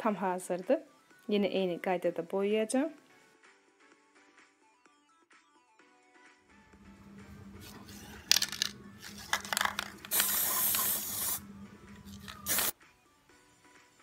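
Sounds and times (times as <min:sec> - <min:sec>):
spray paint can hissing: 0:07.6 - 0:12.8.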